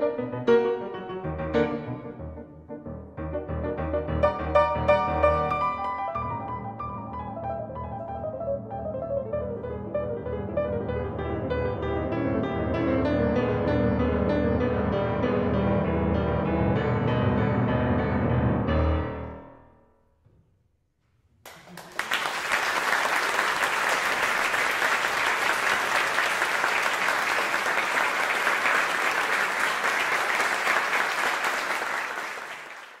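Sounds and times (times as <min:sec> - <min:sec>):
grand piano chords: 0:00.0 - 0:20.3
audience applause: 0:21.5 - 0:33.0.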